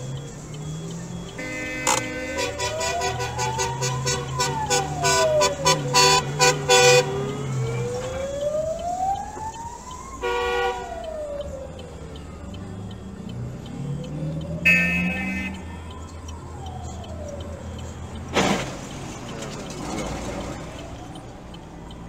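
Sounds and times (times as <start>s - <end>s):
fire engine siren wailing: 0.0s - 22.0s
horn honks: 1.4s - 7.1s, 10.2s - 10.9s, 14.6s - 15.6s.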